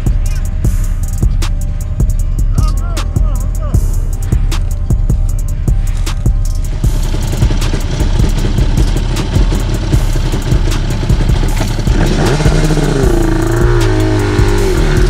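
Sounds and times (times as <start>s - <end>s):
two-stroke engine revving: 6.7s - 15.0s.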